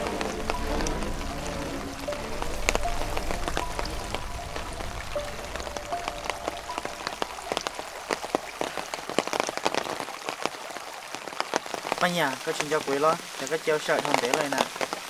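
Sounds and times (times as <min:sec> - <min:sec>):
low rumble: 0:00.0 - 0:09.1
rain falling: 0:00.0 - 0:15.0.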